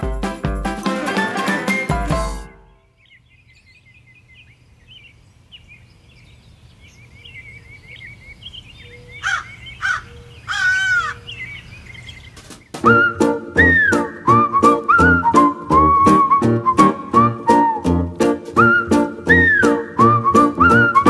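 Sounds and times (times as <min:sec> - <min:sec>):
harsh bird calls: 0:02.6 - 0:12.8
small birds chirping: 0:02.6 - 0:12.8.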